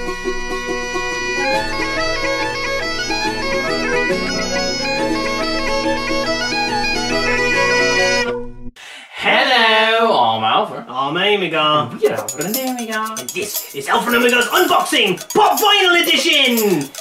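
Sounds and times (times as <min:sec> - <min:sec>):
bagpipe-like melody over drone: 0:00.0 - 0:08.3.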